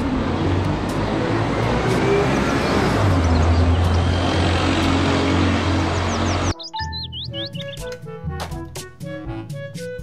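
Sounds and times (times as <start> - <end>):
bus engine hum: 0.0 - 6.6
traffic noise: 0.0 - 7.8.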